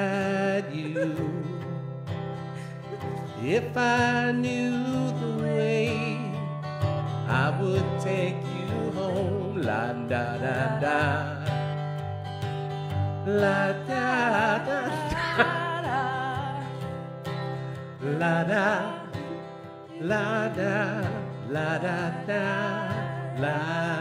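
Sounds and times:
acoustic guitars strumming: 0.0s - 24.0s
woman singing: 13.8s - 16.8s, 18.5s - 24.0s.

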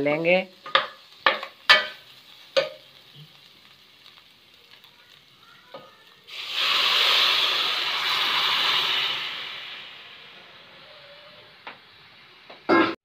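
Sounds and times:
loud steady sizzle: 0.0s - 13.0s
metal ladle knocking on pan: 0.6s - 2.0s, 2.6s - 2.8s
stock poured into hot pan: 0.6s - 12.1s.

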